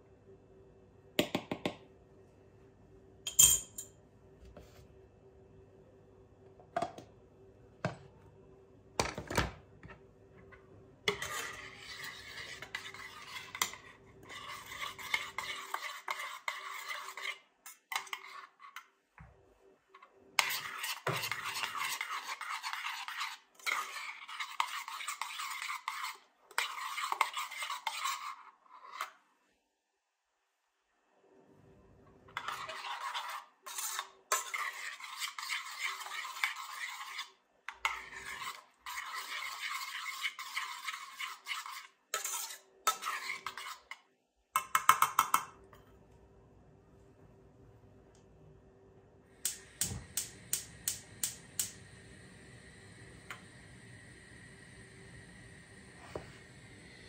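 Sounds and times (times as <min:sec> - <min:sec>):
metal spoon clinking containers: 0:03.3 - 0:04.0
spoon scraping inside metal pot: 0:10.4 - 0:19.0, 0:20.4 - 0:29.2, 0:32.3 - 0:44.0.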